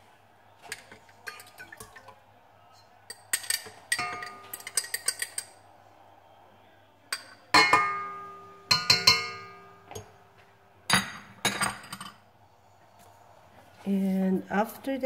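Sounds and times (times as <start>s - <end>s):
utensils knocking on mixing bowls: 0.6s - 2.1s, 3.1s - 5.6s, 7.1s - 10.1s.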